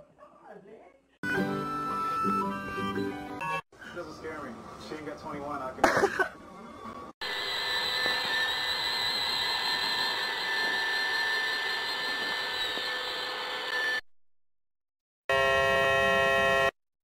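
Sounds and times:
robot vacuum cleaner whirring: 7.2 - 14.0.

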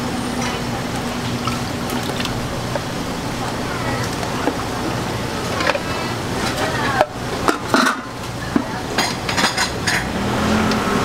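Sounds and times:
steady background hum: 0.0 - 11.0
metal skimmer clinking on steel pots: 3.8 - 10.2.

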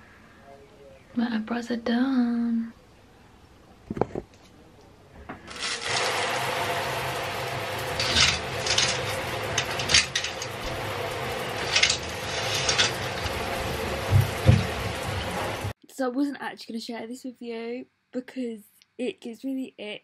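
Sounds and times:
curtain hooks scraping along rail: 5.5 - 6.3, 7.9 - 15.0
shower running: 5.5 - 15.8.

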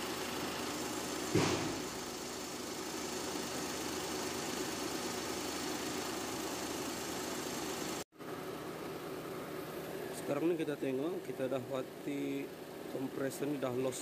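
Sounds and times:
car engine idling: 0.0 - 14.0
short knock: 1.3 - 1.9.

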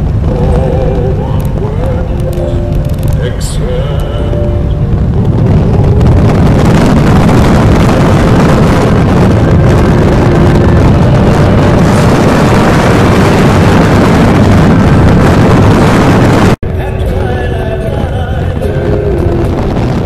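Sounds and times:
motorcycle engine: 0.0 - 16.6
road noise: 0.0 - 20.0
wind buffeting microphone: 0.0 - 20.0.

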